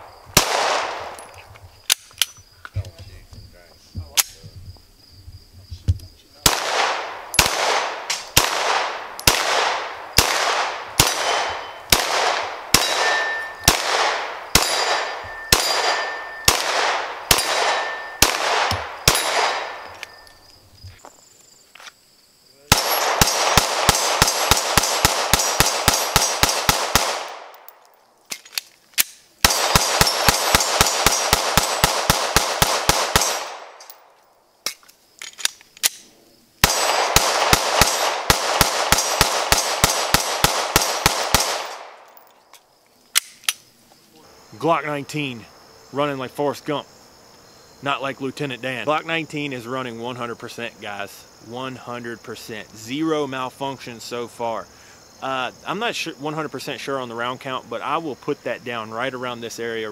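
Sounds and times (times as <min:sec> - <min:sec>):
pistol shots echoing: 0:00.0 - 0:01.2, 0:06.4 - 0:20.2, 0:22.7 - 0:27.8, 0:29.4 - 0:34.0, 0:36.6 - 0:42.2
steel targets ringing: 0:12.7 - 0:13.8, 0:14.5 - 0:16.6, 0:17.3 - 0:18.3.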